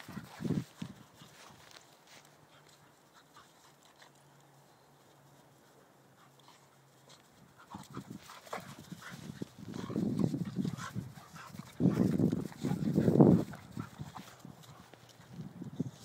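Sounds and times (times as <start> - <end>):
dogs growling while play fighting: 7.5 - 14.9.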